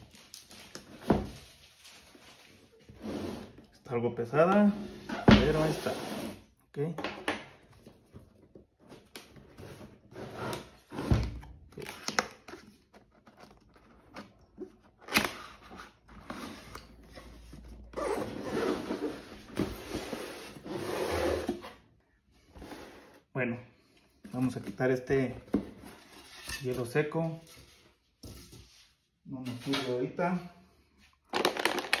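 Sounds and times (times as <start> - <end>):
cardboard box scraping and sliding: 5.4 - 6.4, 18.2 - 21.7.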